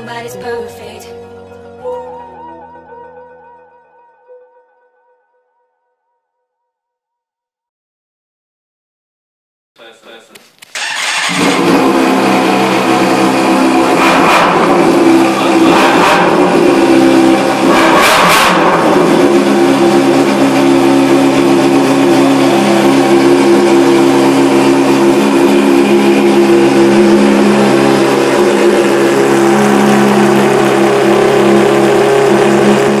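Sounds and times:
motorcycle engine revving: 10.8s - 33.0s.

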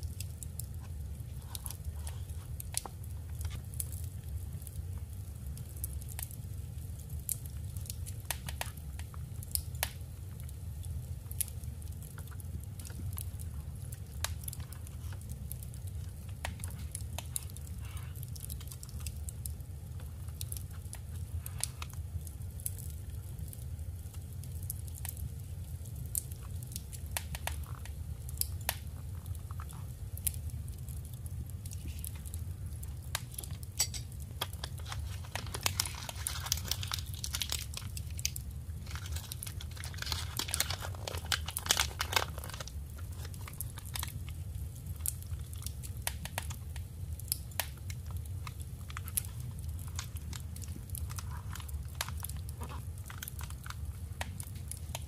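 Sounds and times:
steady low hum: 9.0s - 55.0s
paper crinkling and rustling: 33.2s - 44.3s, 48.4s - 55.0s.

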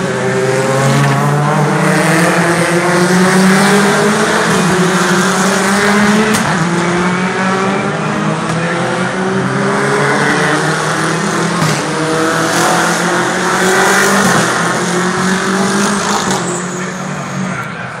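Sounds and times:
race cars passing at speed: 0.0s - 18.0s.

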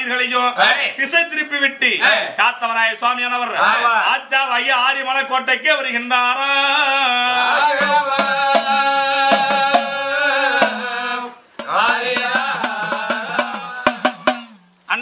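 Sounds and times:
man singing folk ballad: 6.4s - 14.2s
drums struck: 7.8s - 14.8s.

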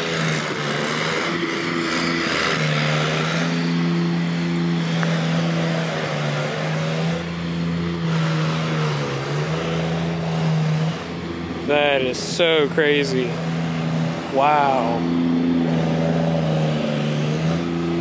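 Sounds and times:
engine running: 0.0s - 18.0s.

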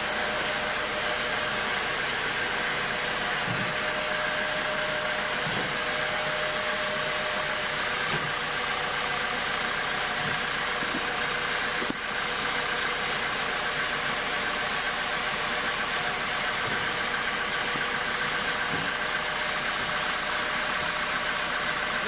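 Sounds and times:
sawmill humming and whining: 0.0s - 22.0s
dull low knocks of log: 3.4s - 4.1s.

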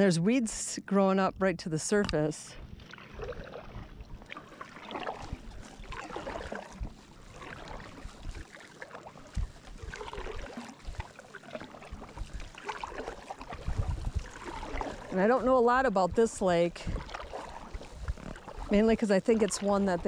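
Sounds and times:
paddle strokes in water: 1.8s - 20.0s
water dripping off paddle: 2.8s - 15.3s, 16.9s - 20.0s.

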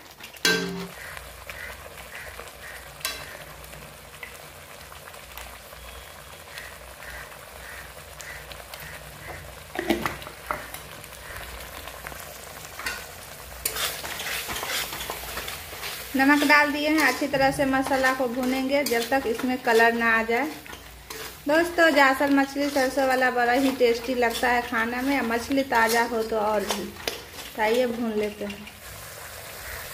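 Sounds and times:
paste sizzling in a pan: 0.0s - 29.9s
spoon knocking against pan: 0.4s - 0.9s
spoon stirring and scraping: 12.8s - 28.9s.

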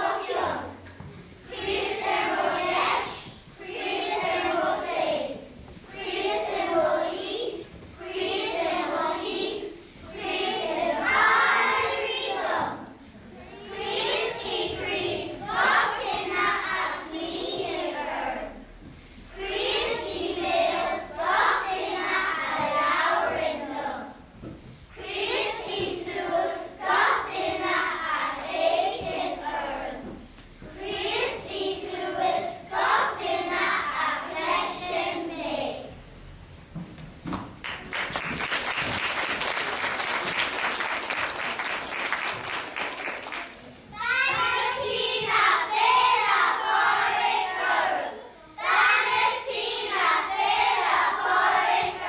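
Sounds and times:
children singing: 0.0s - 0.9s, 1.5s - 13.0s, 13.6s - 18.6s, 19.4s - 24.1s, 25.0s - 36.0s, 43.9s - 52.0s.

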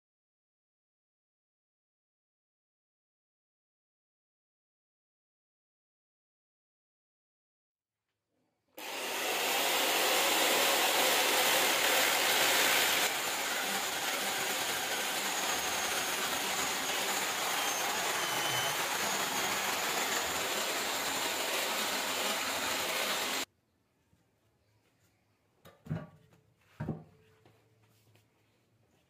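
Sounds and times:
chainsaw cutting wood: 8.8s - 23.5s.

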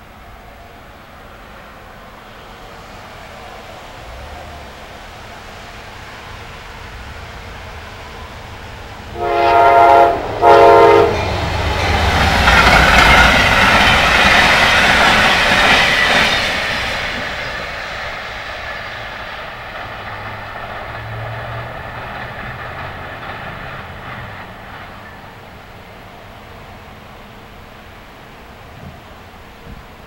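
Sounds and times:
train passing with wheel noise: 0.0s - 30.0s
train horn blasts: 9.1s - 11.4s.

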